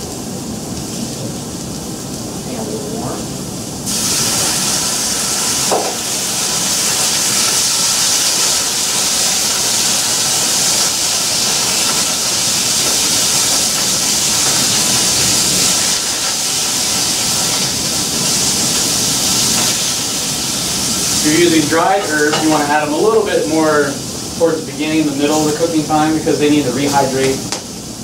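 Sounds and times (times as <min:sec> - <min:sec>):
vegetables sizzling in a pan: 0:00.0 - 0:28.0
water splashing into hot pan: 0:03.8 - 0:26.2
utensil knocking on pan: 0:05.7 - 0:06.0.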